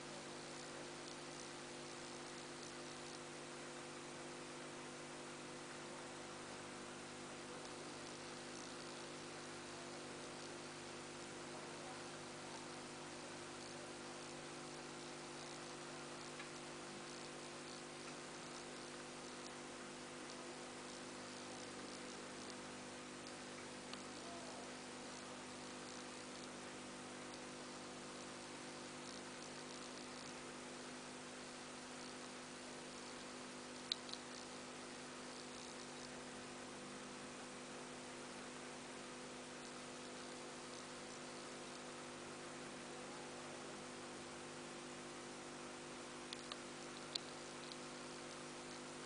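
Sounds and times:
electrical hum: 0:00.0 - 0:49.0
light hiss: 0:00.0 - 0:49.0.

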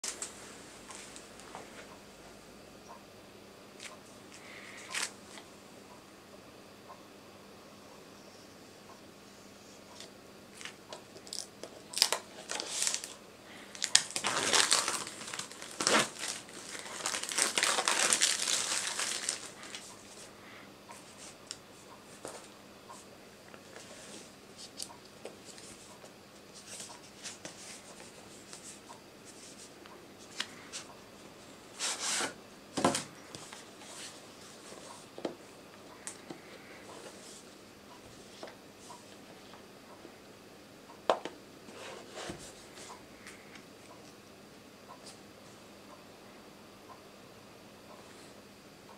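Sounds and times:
plastic film tearing and crinkling: 0:11.2 - 0:19.8
rustling scrape: 0:31.8 - 0:32.4, 0:41.7 - 0:42.9.

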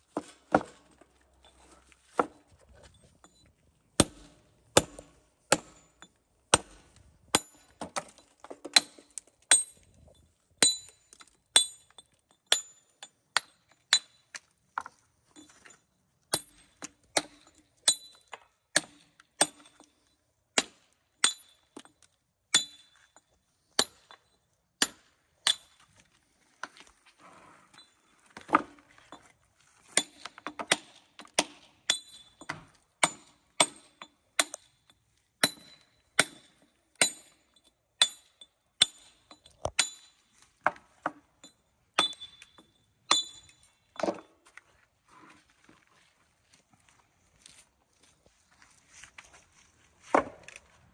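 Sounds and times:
hammer striking steel chisel: 0:04.0 - 0:08.1, 0:10.6 - 0:14.2, 0:16.3 - 0:19.9, 0:22.5 - 0:23.0, 0:30.0 - 0:34.8, 0:35.4 - 0:37.4, 0:38.0 - 0:40.2, 0:41.4 - 0:44.2.

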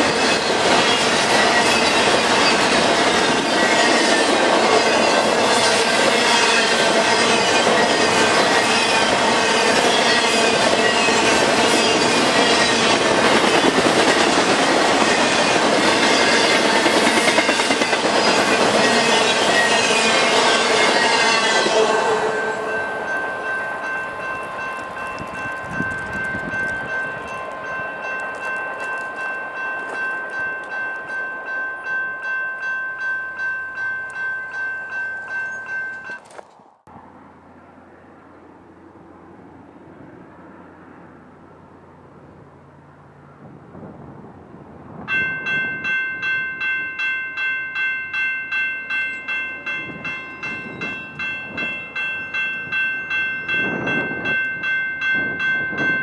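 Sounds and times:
crossing bell ringing: 0:00.0 - 0:36.4, 0:45.0 - 0:56.0
quiet outdoor ambience: 0:36.2 - 0:43.4.

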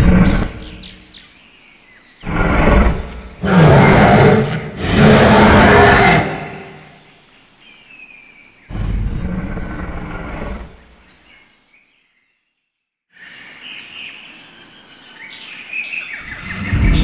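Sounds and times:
loud low dinosaur roar: 0:00.0 - 0:00.9, 0:02.2 - 0:07.0, 0:08.7 - 0:10.8, 0:16.3 - 0:17.0.

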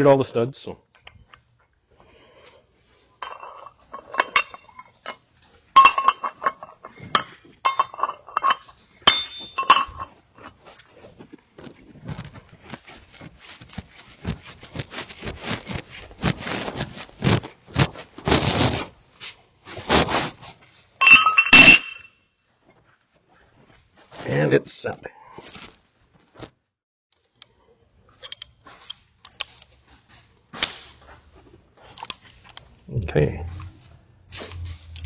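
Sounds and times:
steel nuts clinking on studs: 0:03.2 - 0:05.2, 0:05.8 - 0:10.6, 0:21.0 - 0:22.2
nuts rattling and scraping: 0:03.2 - 0:08.8.

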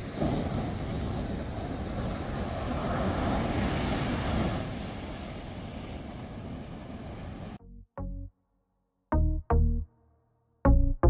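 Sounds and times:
waves breaking on beach: 0:00.0 - 0:07.6.

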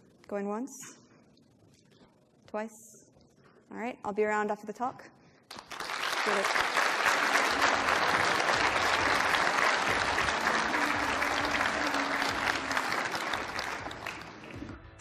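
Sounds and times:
audience applauding: 0:05.5 - 0:14.8.

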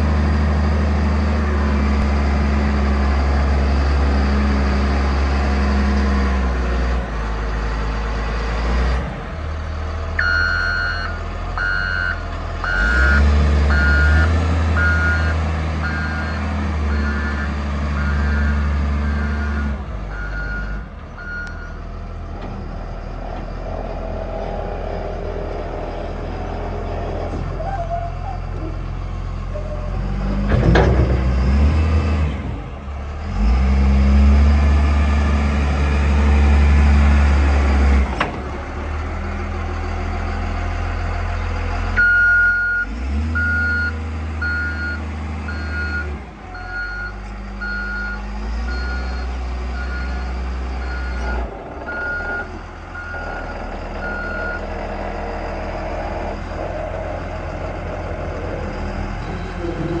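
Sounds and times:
diesel engine surging: 0:00.0 - 1:00.0
reversing alarm beeping: 0:10.2 - 0:21.8, 0:42.0 - 0:54.7.

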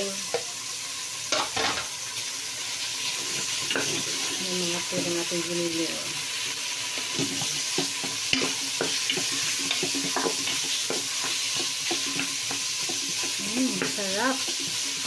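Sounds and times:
meat sizzling in a pot: 0:00.0 - 0:15.0
wooden spatula scraping a pot: 0:03.0 - 0:05.1, 0:06.8 - 0:15.0.

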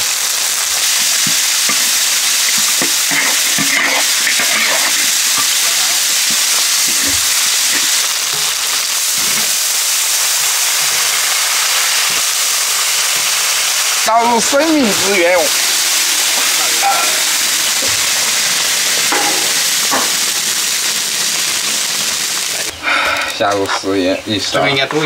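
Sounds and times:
food sizzling in hot oil: 0:00.0 - 0:24.9
spatula scraping pot: 0:02.5 - 0:08.5.

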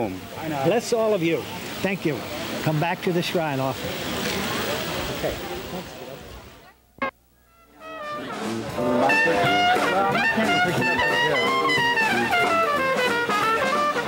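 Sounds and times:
brass band music: 0:07.0 - 0:14.0.

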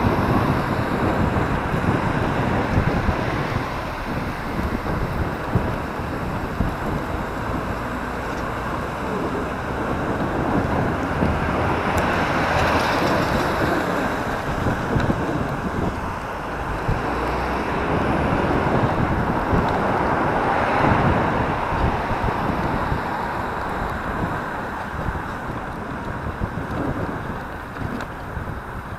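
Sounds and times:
passing road traffic rumble: 0:00.0 - 0:28.9
wind buffeting microphone: 0:00.0 - 0:28.9.

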